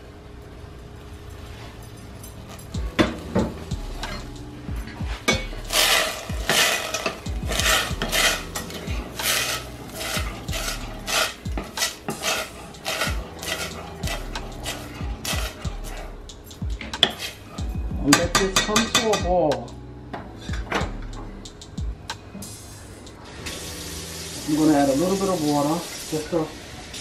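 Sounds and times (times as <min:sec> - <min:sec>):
spoon clinking and scraping pot: 0:05.2 - 0:16.0, 0:17.0 - 0:17.6
spoon stirring beans in a pot: 0:05.2 - 0:16.1, 0:16.8 - 0:17.6.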